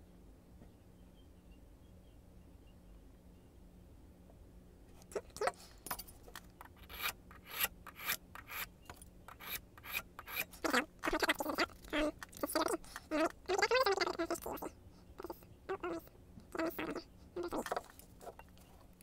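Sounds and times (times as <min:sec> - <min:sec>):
hand file rasping on metal key: 0:06.6 - 0:08.7, 0:09.3 - 0:10.8.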